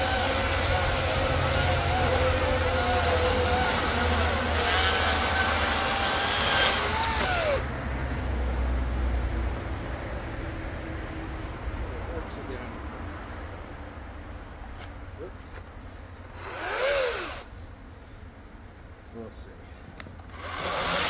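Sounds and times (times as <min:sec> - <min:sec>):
chainsaw cutting log: 0:00.0 - 0:07.7, 0:16.3 - 0:17.5, 0:20.2 - 0:21.0.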